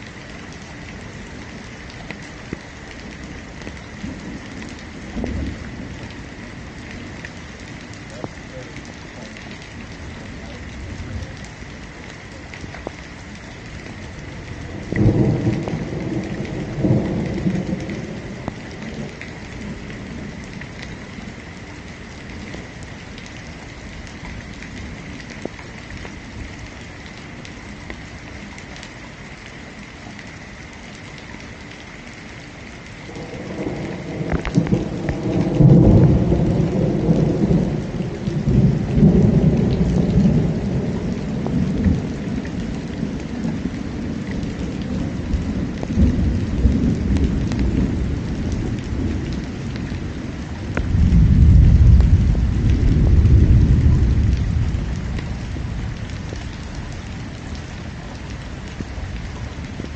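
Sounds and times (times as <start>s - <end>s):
steady rain falling: 0.0s - 59.9s
thunder rumbling: 2.5s - 22.8s, 33.0s - 59.9s.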